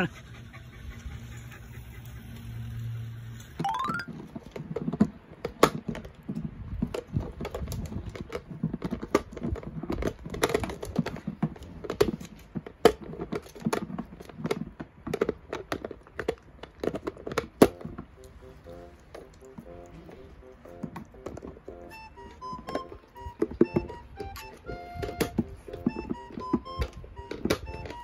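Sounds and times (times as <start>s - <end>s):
dog teeth gnawing plastic: 4.1s - 28.0s
music: 17.6s - 28.0s.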